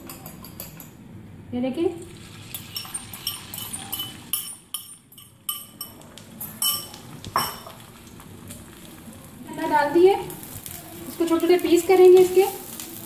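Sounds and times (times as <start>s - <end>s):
kitchen utensils clinking: 0.0s - 1.0s, 2.2s - 8.0s.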